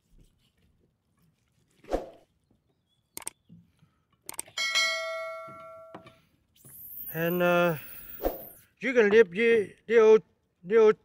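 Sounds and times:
sharp clicks: 0:03.2 - 0:03.4, 0:04.2 - 0:04.6
bell chime: 0:04.6 - 0:06.0.

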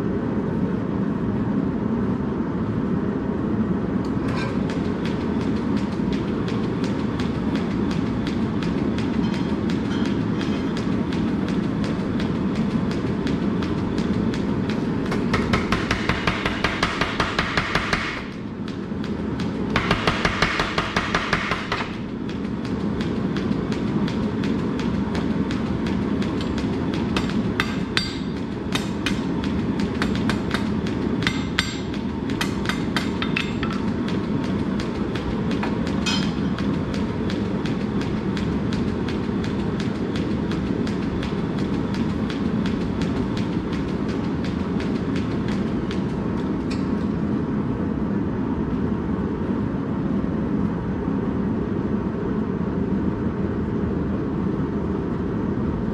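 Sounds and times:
low mechanical motor drone: 0:00.0 - 0:55.9
metal clinks and taps: 0:36.0 - 0:36.4.

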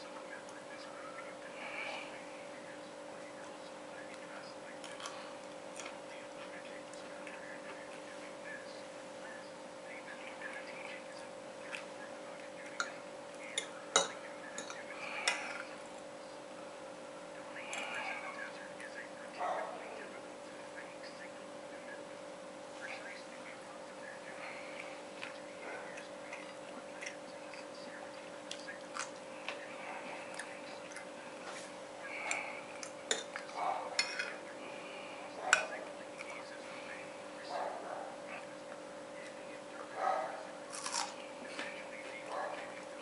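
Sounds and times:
steady background hum: 0:00.0 - 0:43.0
person chewing food: 0:04.8 - 0:08.1, 0:24.6 - 0:34.0, 0:40.6 - 0:42.9.

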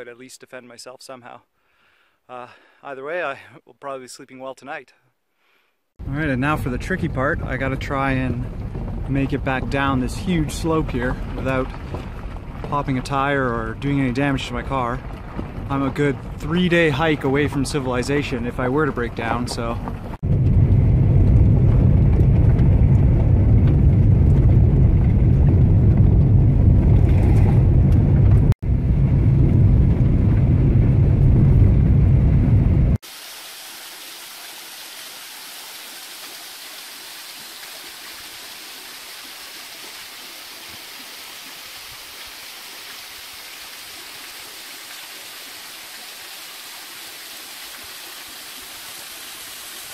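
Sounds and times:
tyres and engine rumbling: 0:06.0 - 0:33.0
waterfall pouring into a pool: 0:33.0 - 0:49.9.

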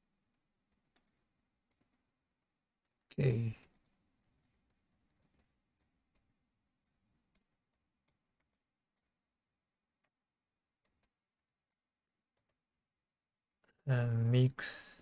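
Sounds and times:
computer mouse clicks: 0:00.8 - 0:01.9, 0:03.6 - 0:09.1, 0:10.8 - 0:11.2, 0:12.4 - 0:12.7.

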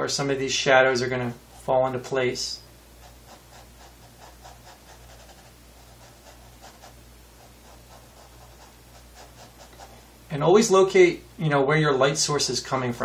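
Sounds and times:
paintbrush strokes on canvas: 0:03.0 - 0:10.0.

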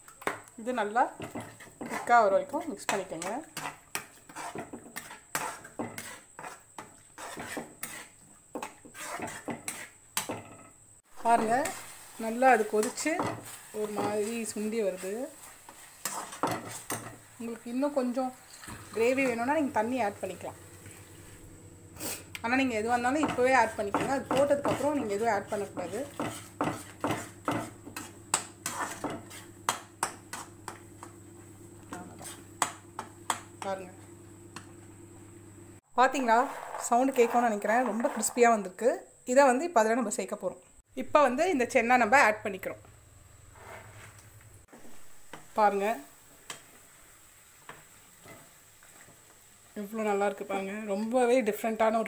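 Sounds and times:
metal spatula scraping a pan: 0:00.3 - 0:31.1, 0:31.9 - 0:33.8, 0:36.0 - 0:38.8, 0:43.4 - 0:46.6.

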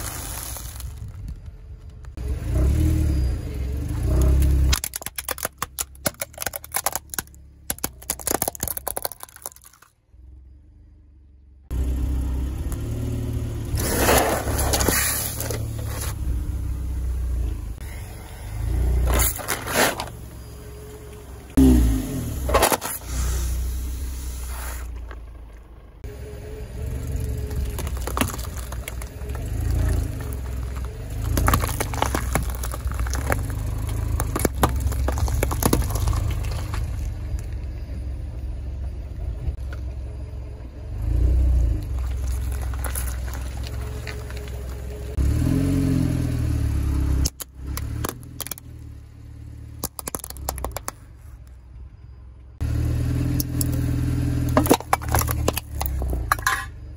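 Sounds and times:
objects cracking and crunching: 0:00.0 - 0:02.1, 0:04.4 - 0:09.9, 0:27.4 - 0:37.6, 0:41.8 - 0:45.2, 0:47.2 - 0:48.8, 0:49.8 - 0:51.1, 0:54.5 - 0:56.6
car rumbling: 0:00.0 - 0:56.9.

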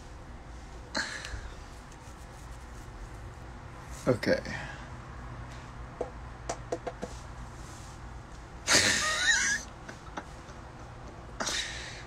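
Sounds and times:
man laughing breathily: 0:08.7 - 0:10.4.

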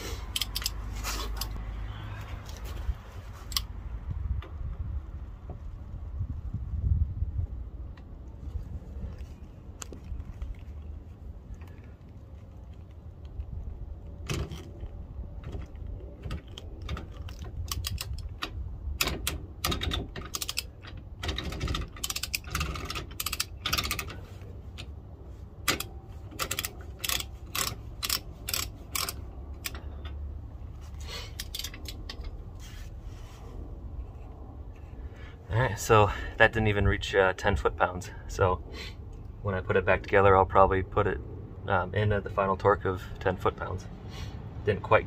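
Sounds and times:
wrench socket clicking and clunking: 0:00.3 - 0:01.6, 0:15.6 - 0:24.2, 0:25.6 - 0:30.2, 0:31.3 - 0:32.4.

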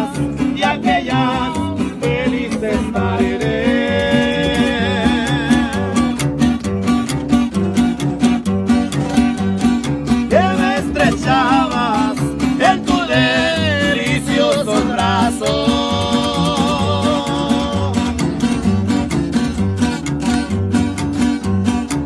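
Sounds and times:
man singing: 0:00.0 - 0:06.3, 0:09.0 - 0:18.3
acoustic guitars and upright bass: 0:00.0 - 0:22.0.

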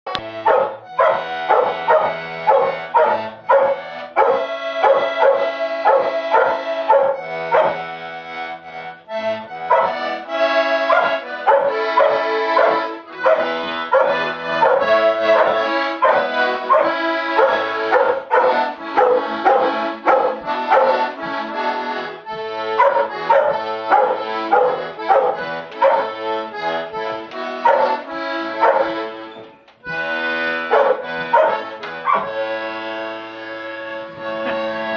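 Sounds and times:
accordion playing chords: 0:00.0 - 0:34.9
dog howling: 0:00.5 - 0:07.8, 0:09.7 - 0:10.0, 0:10.8 - 0:21.1, 0:22.8 - 0:26.1, 0:30.7 - 0:32.3.

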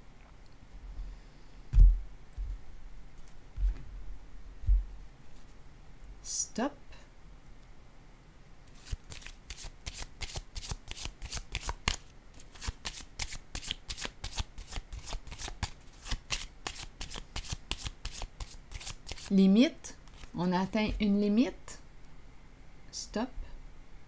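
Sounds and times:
cards being shuffled: 0:08.7 - 0:19.3, 0:20.0 - 0:21.0.

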